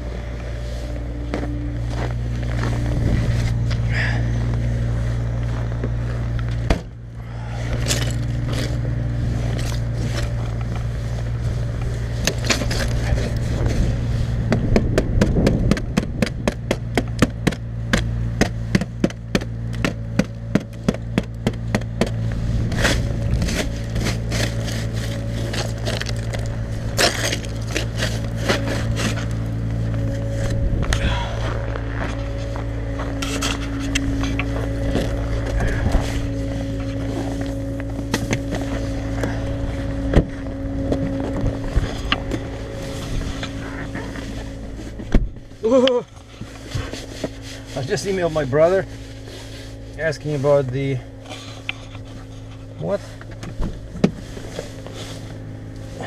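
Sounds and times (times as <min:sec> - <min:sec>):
low engine hum: 0:00.0 - 0:56.0
brush scraping snow off a car: 0:07.4 - 0:14.7, 0:17.8 - 0:56.0.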